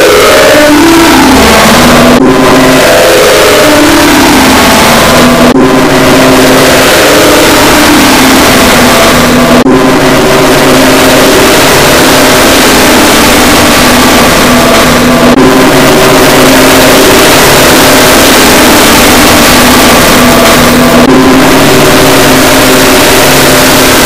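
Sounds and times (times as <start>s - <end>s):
harsh distorted noise: 0.0s - 24.0s
steady held tones: 0.0s - 24.0s.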